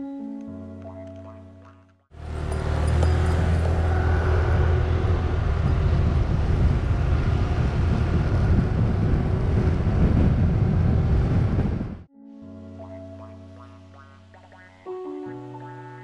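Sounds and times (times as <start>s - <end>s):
vehicle engine droning: 2.1s - 12.1s
wind buffeting microphone: 3.0s - 12.1s.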